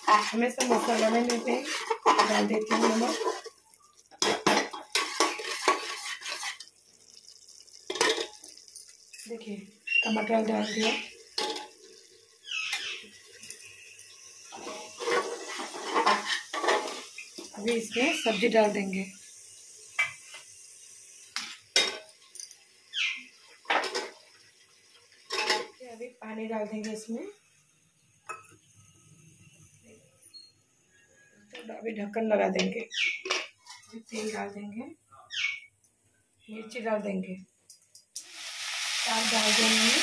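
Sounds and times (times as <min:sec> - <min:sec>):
metal ladle scraping metal pot: 0:00.0 - 0:03.5, 0:04.2 - 0:06.7, 0:14.5 - 0:17.4.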